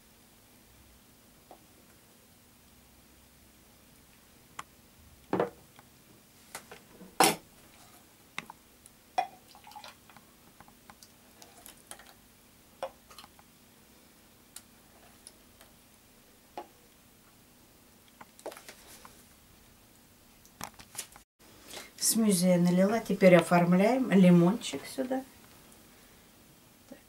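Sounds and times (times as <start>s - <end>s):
liquid pouring and dripping: 9.2s - 10.2s.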